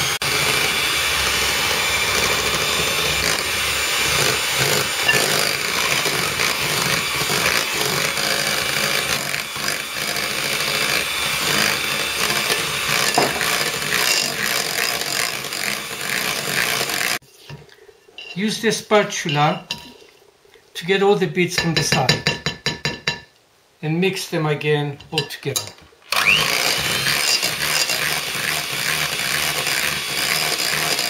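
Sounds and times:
electric hand mixer running: 0.0s - 17.2s, 26.1s - 31.0s.

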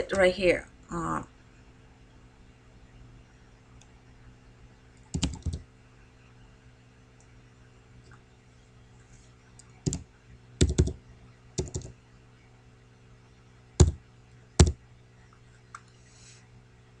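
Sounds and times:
faint steady hum: 0.0s - 17.0s
keyboard keystrokes: 5.1s - 5.6s, 10.6s - 11.0s, 11.6s - 11.9s.

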